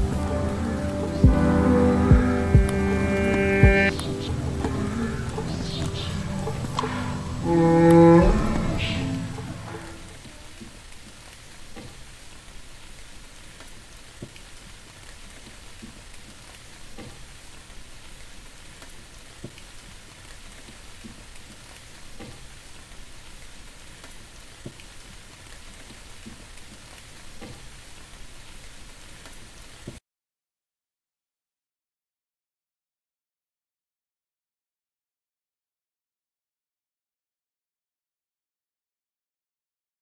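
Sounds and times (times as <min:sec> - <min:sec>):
steady hiss: 0:00.0 - 0:30.0.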